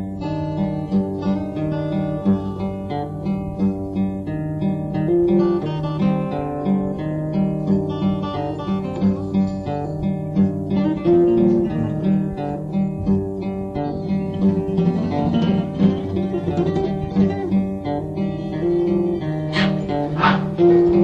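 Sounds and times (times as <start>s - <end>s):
acoustic guitar melody: 0.0s - 21.0s
bass notes: 0.0s - 21.0s
short sharp sounds: 19.5s - 20.8s.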